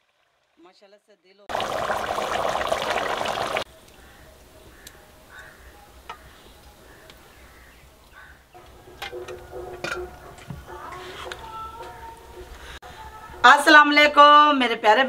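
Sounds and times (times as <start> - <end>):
food sizzling in a pot: 1.5 - 3.7.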